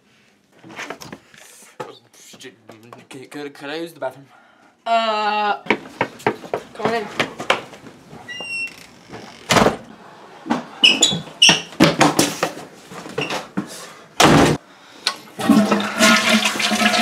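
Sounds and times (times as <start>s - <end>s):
door squeaking: 8.3s - 9.8s, 10.8s - 11.8s
toilet flush rushing: 15.4s - 17.0s.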